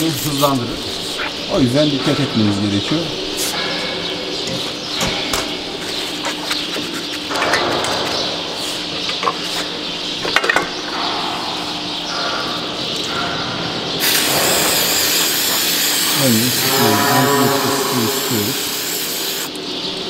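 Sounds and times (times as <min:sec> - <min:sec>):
aerosol spray hissing: 0:14.0 - 0:19.5.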